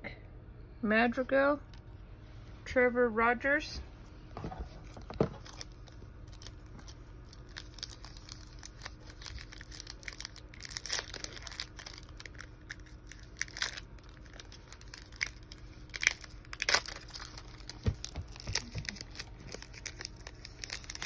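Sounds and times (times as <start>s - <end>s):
plastic wrapper crinkling and tearing: 4.9s - 21.0s.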